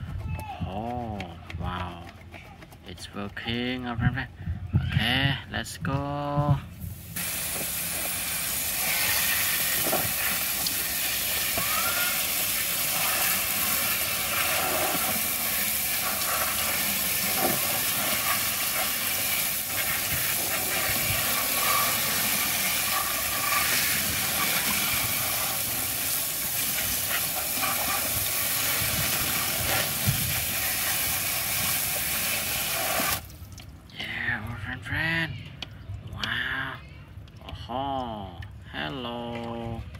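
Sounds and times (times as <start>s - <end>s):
water spray hissing on plastic: 6.8s - 33.6s.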